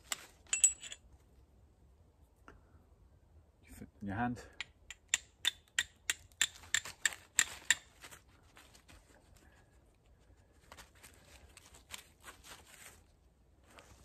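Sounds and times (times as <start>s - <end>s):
steel striker clinking on flint: 0.1s - 1.0s, 4.5s - 7.9s
soft handling sounds: 6.7s - 14.0s.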